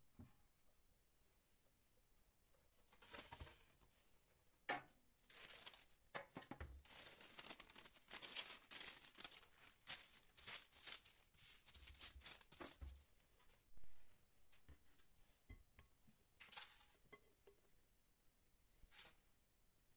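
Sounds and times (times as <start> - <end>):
paper crinkling and rustling: 5.3 - 13.6.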